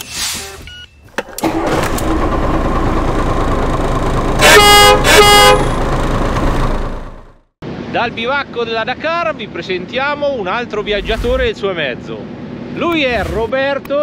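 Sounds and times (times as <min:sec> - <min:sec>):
vehicle engine running: 0:01.9 - 0:07.5
horn toots: 0:04.4 - 0:05.8.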